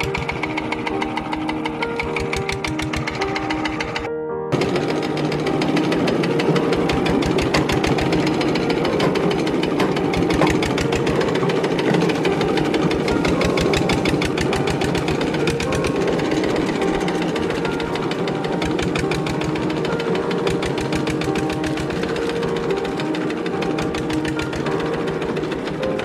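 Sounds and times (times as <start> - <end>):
diesel engine knocking: 0.0 - 26.0.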